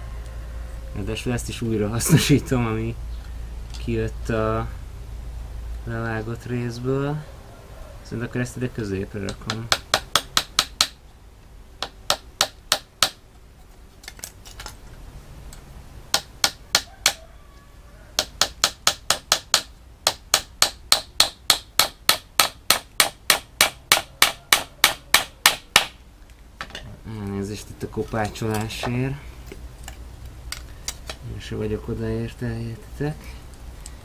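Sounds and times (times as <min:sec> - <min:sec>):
hammer tapping nails into wood: 0:09.2 - 0:11.0, 0:18.2 - 0:26.0.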